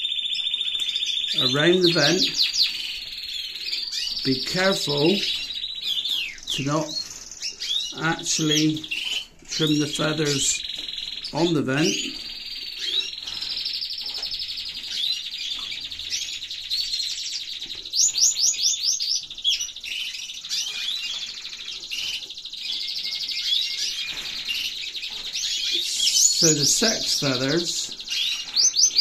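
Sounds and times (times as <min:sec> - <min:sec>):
bird chirps: 0:00.0 - 0:29.0
canaries trilling: 0:00.0 - 0:29.0.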